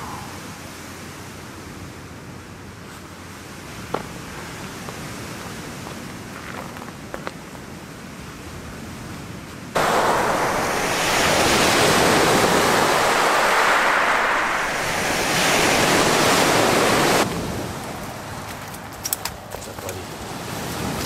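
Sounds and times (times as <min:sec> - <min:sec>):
surf breaking on shore: 0:09.8 - 0:18.5.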